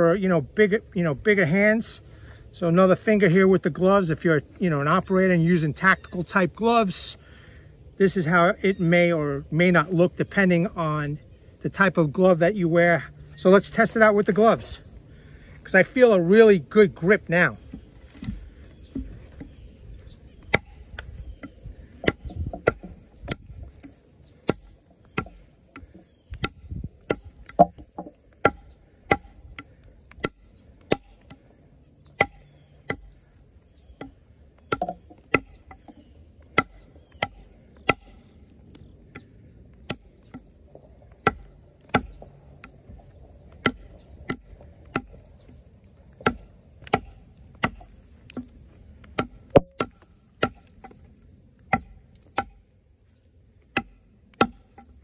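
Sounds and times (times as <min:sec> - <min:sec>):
insects chirring: 0:00.0 - 0:55.0
knife chopping into wood: 0:17.6 - 0:19.5, 0:20.4 - 0:31.4, 0:32.1 - 0:33.2, 0:34.0 - 0:38.2, 0:41.2 - 0:42.8, 0:43.5 - 0:45.2, 0:46.2 - 0:51.0, 0:51.7 - 0:52.6, 0:53.7 - 0:54.9.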